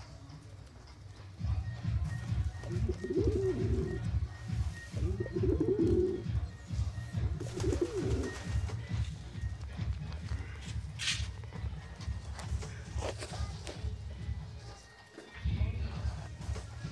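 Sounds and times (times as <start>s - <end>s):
pigeons cooing: 2.3s - 9.0s.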